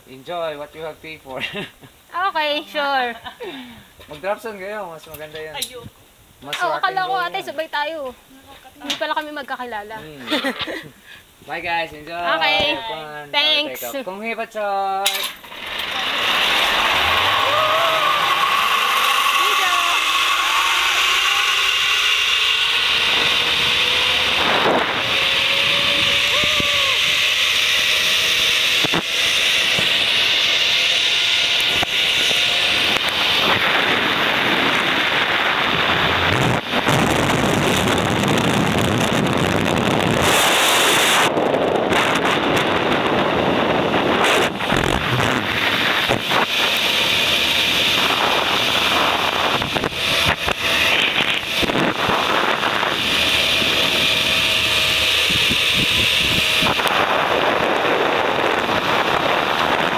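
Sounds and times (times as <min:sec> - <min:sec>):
zipline trolley whine on cable: 0:00.4 - 0:59.9
wind rushing over microphone: 0:15.6 - 0:59.9.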